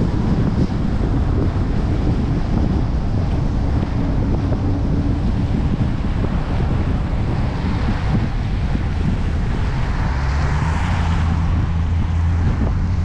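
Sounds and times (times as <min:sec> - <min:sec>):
car engine: 0:00.0 - 0:13.0
tyres on wet road: 0:00.0 - 0:13.0
wind buffeting camera: 0:00.0 - 0:13.0.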